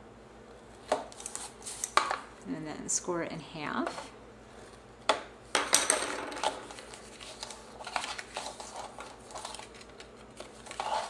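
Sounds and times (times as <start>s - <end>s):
paper rustling and clicking: 6.4s - 11.0s.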